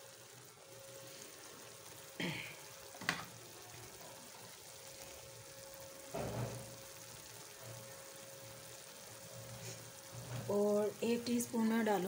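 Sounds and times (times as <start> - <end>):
vegetables sizzling in a pot: 0.0 - 12.0
scrape in a pot: 9.5 - 10.5.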